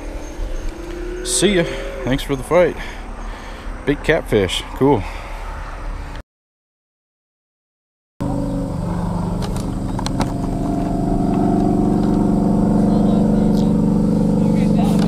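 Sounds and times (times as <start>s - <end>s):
vehicle engine running: 0.0s - 4.0s, 8.2s - 15.0s.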